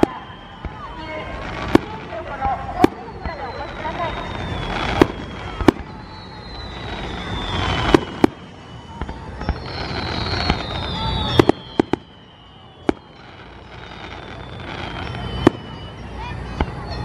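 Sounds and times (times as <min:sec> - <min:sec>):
firework shells bursting with bangs: 0:00.0 - 0:16.8
high descending whistles: 0:00.0 - 0:17.0.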